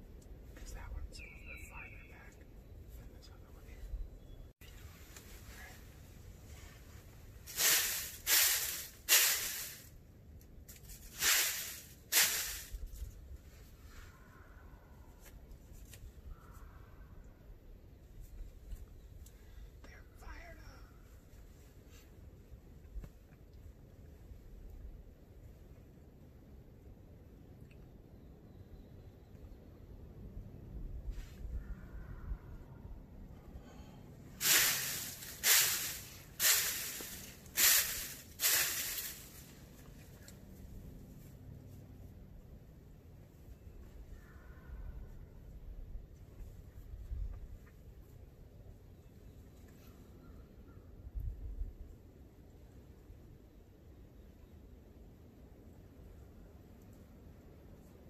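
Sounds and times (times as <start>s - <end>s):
dry leaves scratching: 6.6s - 9.9s, 10.7s - 13.2s, 34.4s - 40.6s
faint distant call: 13.6s - 15.5s, 31.1s - 40.4s, 43.6s - 45.3s
wind rumble on microphone: 29.8s - 33.6s, 43.8s - 48.2s, 50.8s - 52.1s.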